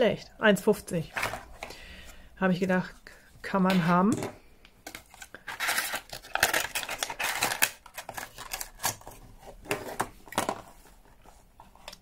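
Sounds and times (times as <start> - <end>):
plastic packaging crinkling: 4.9 - 11.0.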